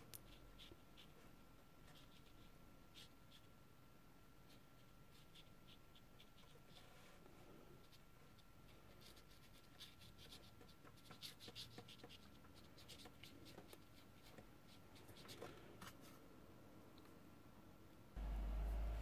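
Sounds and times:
faint steady tone: 16.4 - 19.0.

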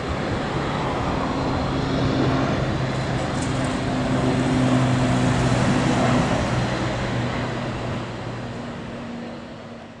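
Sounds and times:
propeller plane droning: 0.0 - 10.0
rushing engine noise: 0.0 - 10.0.

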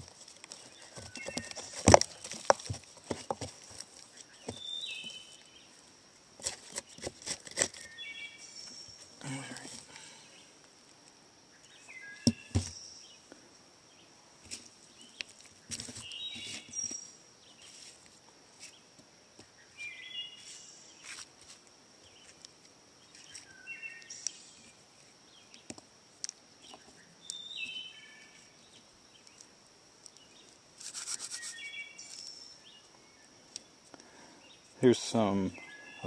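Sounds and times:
dry wood fibres crackling: 0.0 - 5.8, 6.4 - 8.2, 28.3 - 34.2.

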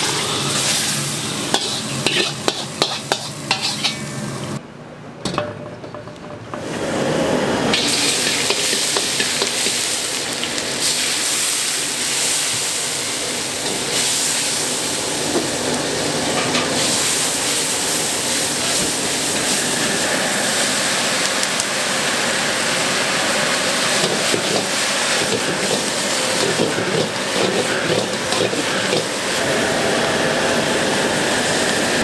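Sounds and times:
food sizzling in a wok: 0.0 - 4.6, 6.7 - 32.0
gas burner rushing: 6.5 - 32.0.

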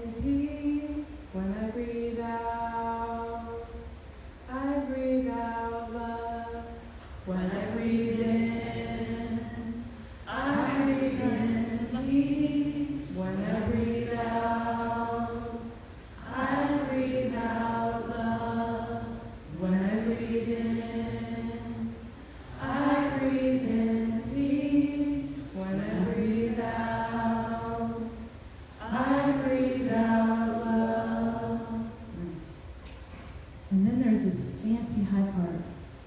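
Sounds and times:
group of voices chanting: 10.3 - 12.2.

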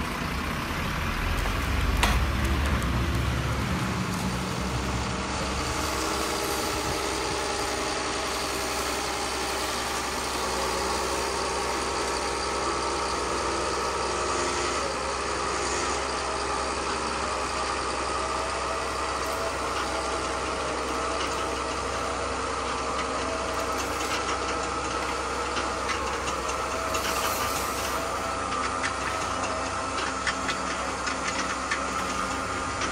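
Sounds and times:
steady engine-like drone: 0.0 - 32.9
toy bucket scraping wet sand: 26.8 - 28.1.

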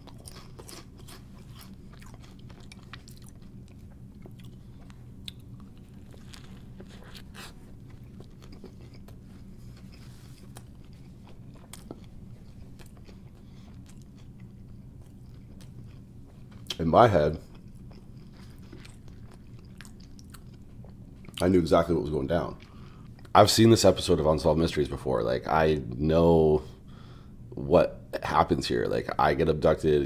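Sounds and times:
chewing crunchy food: 0.0 - 23.4
low steady hum: 0.0 - 30.0.

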